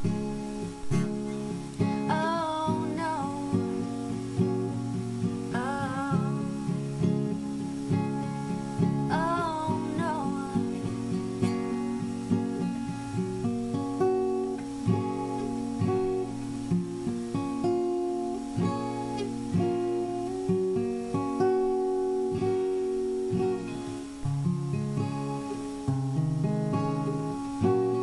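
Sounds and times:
acoustic guitar strumming: 0.0 - 28.0
woman singing wavering note: 9.1 - 10.8.

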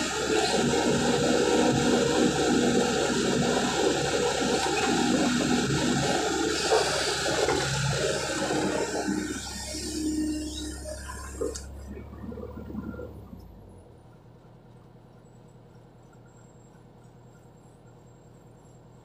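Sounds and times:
excavator engine running hard: 0.0 - 14.5.

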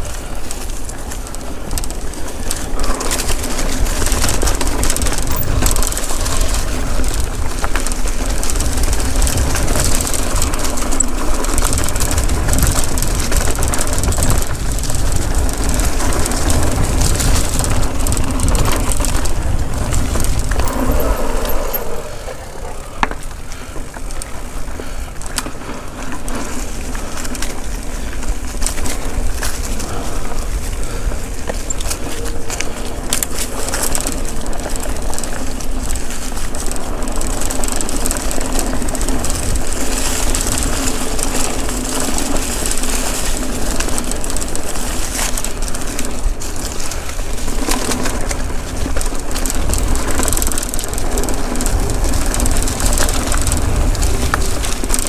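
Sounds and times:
bike clicks and rattles: 0.0 - 55.0
tyre and wind noise: 0.0 - 55.0.

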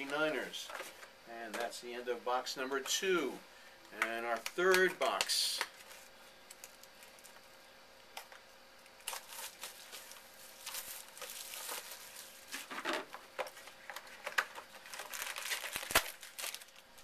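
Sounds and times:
plastic wrapping crinkling and tearing: 4.4 - 7.6, 8.9 - 17.0.

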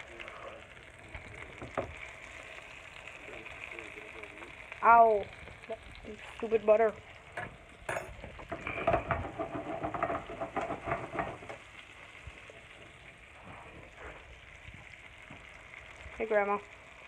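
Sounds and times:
butter sizzling in a hot pan: 0.0 - 17.0.

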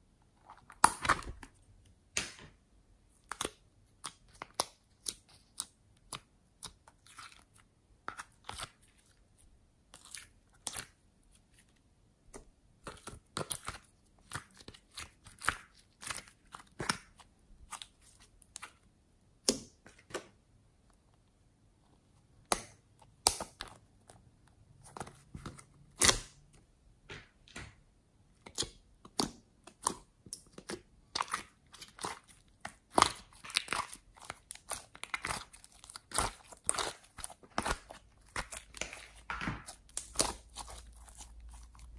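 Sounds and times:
slime squished by fingers: 28.4 - 41.9.

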